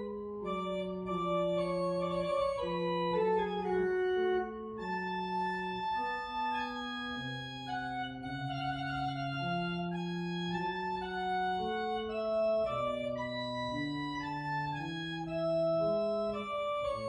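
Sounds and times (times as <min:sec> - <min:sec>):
organ playing sustained chords: 0:00.0 - 0:17.0.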